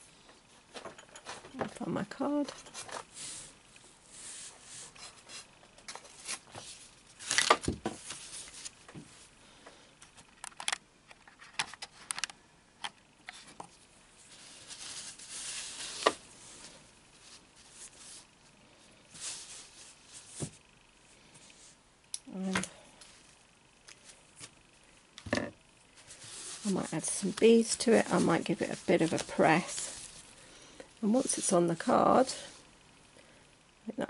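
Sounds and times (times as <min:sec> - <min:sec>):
fabric rustling: 0:19.1 - 0:20.6, 0:25.8 - 0:30.4.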